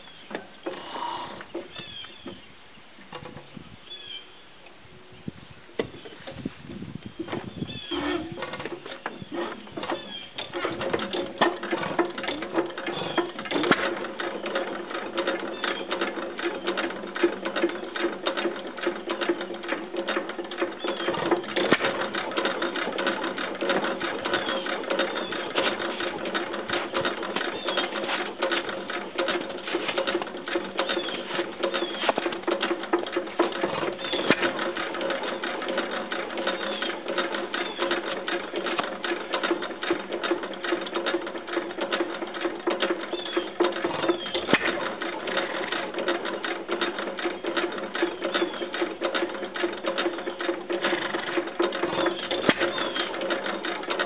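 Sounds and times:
gas engine clattering: 0:05.8 - 0:54.0.

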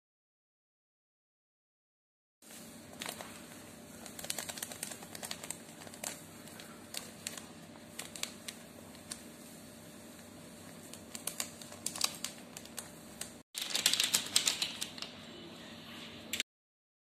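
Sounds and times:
paper sachet crinkling: 0:02.6 - 0:09.3, 0:10.8 - 0:15.1.

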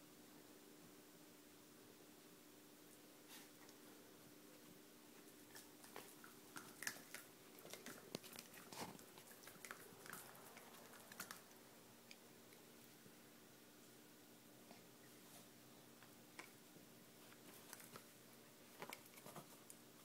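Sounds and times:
puppy chewing rubber toy: 0:05.5 - 0:12.2.

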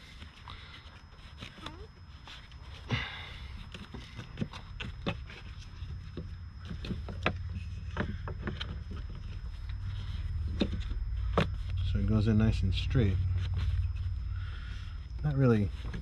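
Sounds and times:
low rumble: 0:06.4 - 0:16.0.

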